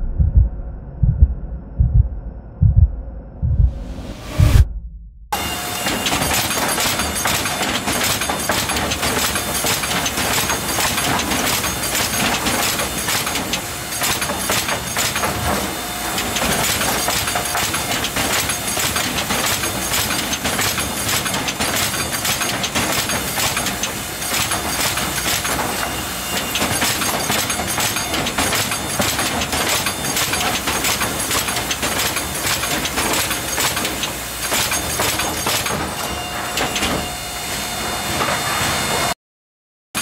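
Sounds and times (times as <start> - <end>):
pallet nailing machine clatter: 5.4 - 39.1.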